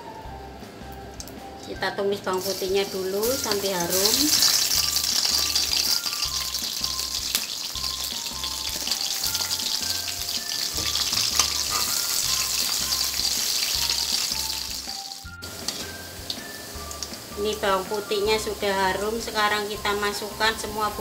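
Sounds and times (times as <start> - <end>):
soft background music: 0.0 - 21.0
garlic sizzling in hot oil: 1.2 - 21.0
metal spatula stirring in wok: 4.3 - 14.3, 15.6 - 16.1.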